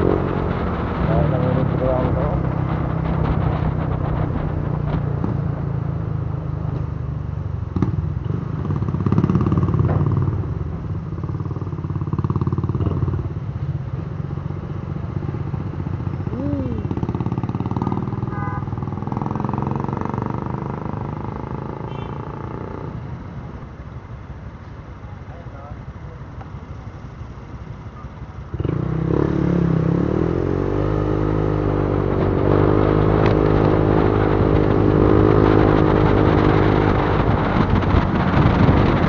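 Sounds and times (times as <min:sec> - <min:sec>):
road noise: 0:00.0 - 0:39.0
scooter engine running: 0:15.5 - 0:19.9.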